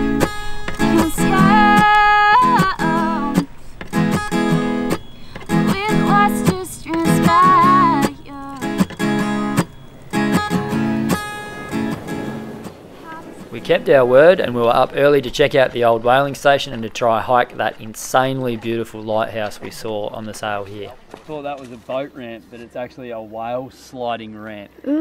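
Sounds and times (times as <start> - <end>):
higher melody line: 0.0 - 13.6
acoustic guitar strumming chords: 0.0 - 14.9.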